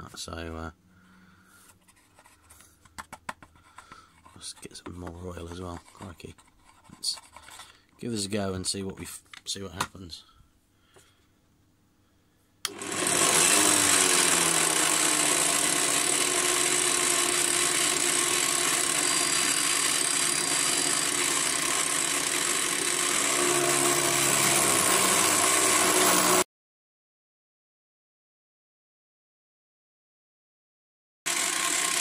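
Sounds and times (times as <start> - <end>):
drill motor whine: 12.7 - 26.4, 31.3 - 32.0
end mill cutting metal: 12.7 - 26.4, 31.3 - 32.0.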